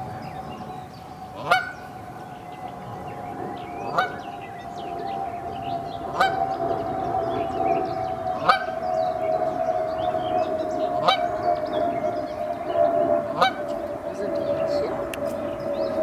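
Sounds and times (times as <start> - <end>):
steady droning tone: 0.0 - 16.0
goslings peeping: 1.3 - 2.2, 3.7 - 16.0
goose call: 1.4 - 1.8, 3.9 - 4.2, 6.1 - 6.4, 8.4 - 8.8, 11.0 - 11.4, 13.2 - 14.8.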